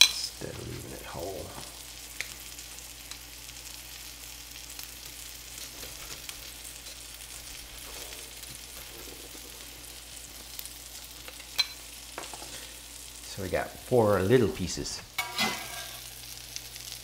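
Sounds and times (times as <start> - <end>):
food sizzling in a skillet: 0.0 - 17.0
grease popping and crackling: 4.8 - 12.7.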